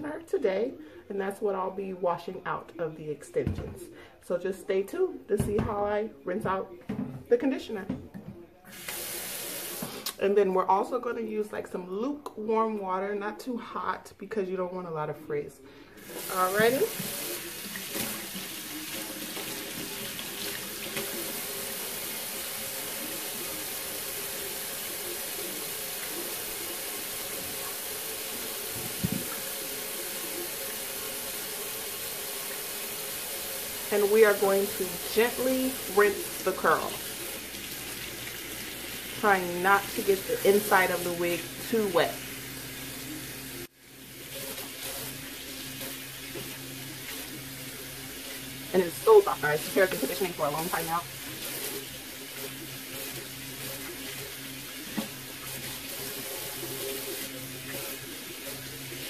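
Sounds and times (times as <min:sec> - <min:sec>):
faucet running into steel sink: 0:08.7 - 0:10.2, 0:16.0 - 0:59.0.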